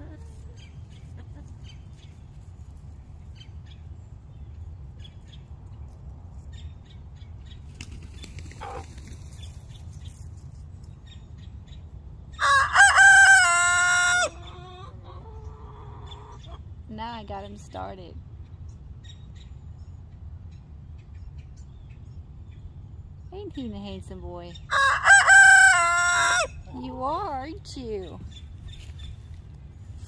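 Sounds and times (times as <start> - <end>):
rooster crowing: 12.4 - 14.8, 24.7 - 26.6.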